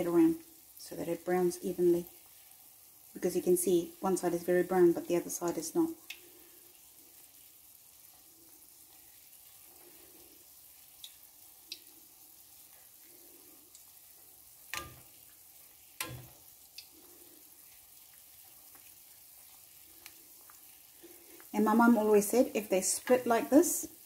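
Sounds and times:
dough frying in hot oil: 0.0 - 24.0
skimmer tapping against pan: 14.7 - 15.1, 16.0 - 16.4.

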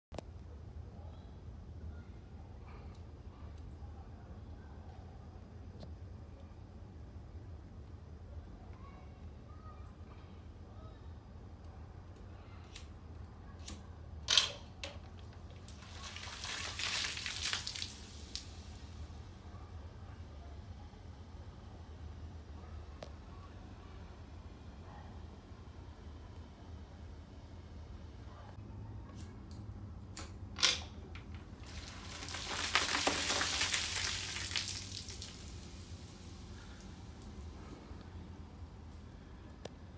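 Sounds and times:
soda fizzing and splattering: 15.6 - 19.0, 31.5 - 37.5
soda geyser burst: 31.6 - 37.2.

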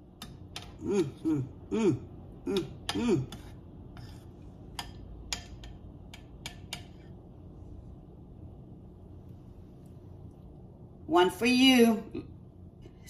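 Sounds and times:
spoon stirring in ceramic bowl: 0.0 - 1.2, 2.6 - 7.5.

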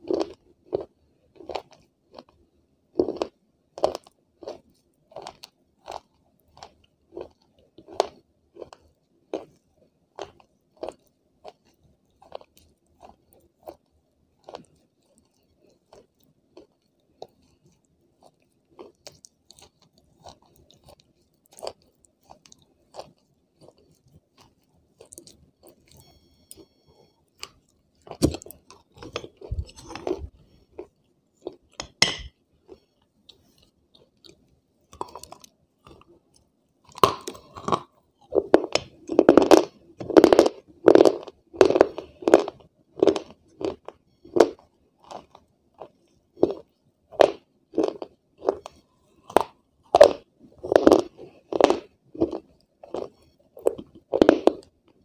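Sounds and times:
chewing crunchy pieces: 0.0 - 55.0.

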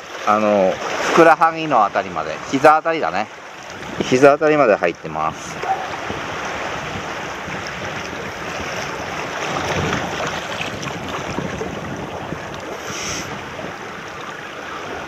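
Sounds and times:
water lapping and sloshing: 0.0 - 15.0
wind buffeting microphone: 3.6 - 15.0
short high hiss: 12.8 - 13.3.

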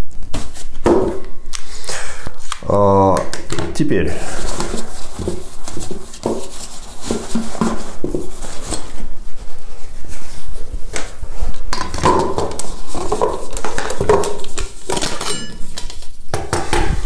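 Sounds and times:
fabric cover rustling: 4.4 - 11.6
metal pot parts clinking: 14.9 - 15.8.

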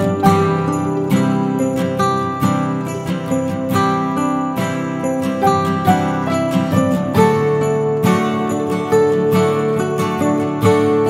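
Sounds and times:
plucked strings music: 0.0 - 11.0.

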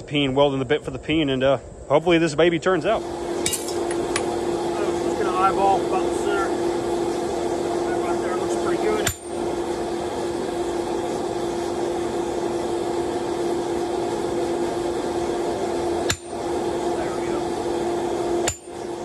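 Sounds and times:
steady mechanical drone: 0.0 - 19.0
hammer striking metal punch: 3.4 - 4.0, 9.0 - 9.3, 16.0 - 16.4, 18.4 - 18.8.

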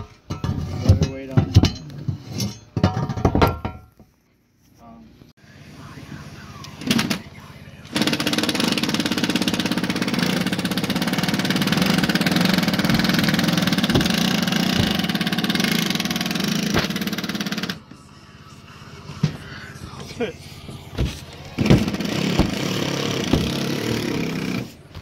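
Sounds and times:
reciprocating saw cutting wood: 7.9 - 17.8, 20.9 - 24.9.

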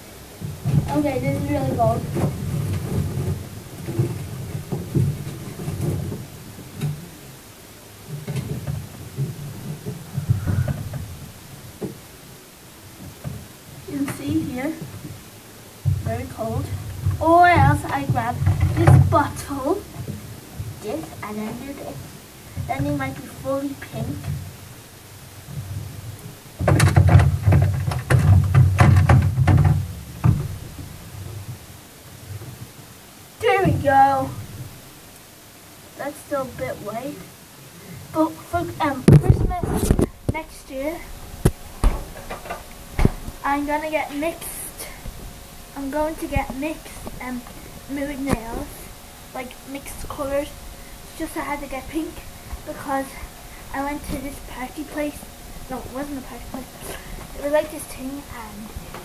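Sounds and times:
phone microphone handling noise: 38.6 - 43.5.

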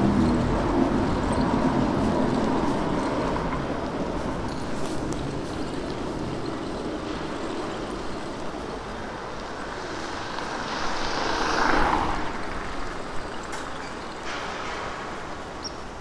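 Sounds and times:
wind and road noise: 0.0 - 16.0
vehicle passing: 9.6 - 13.1.

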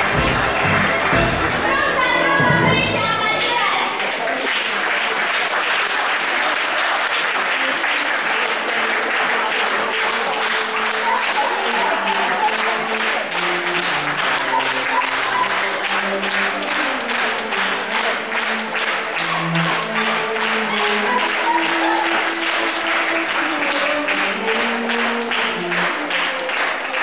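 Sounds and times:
music playing: 0.0 - 3.7, 7.8 - 27.0
audience rhythmic clapping: 0.0 - 27.0.

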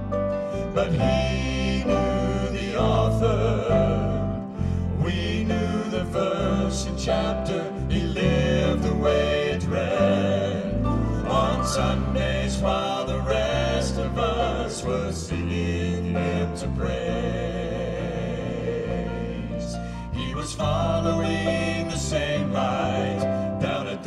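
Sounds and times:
low bass notes: 0.0 - 23.8
male vocal quartet singing harmony: 0.0 - 24.0.

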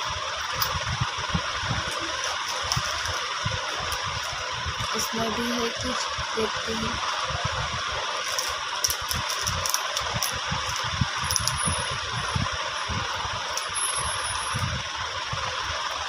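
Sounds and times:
jewellery clicking and rattling: 1.9 - 4.4, 8.2 - 11.9.

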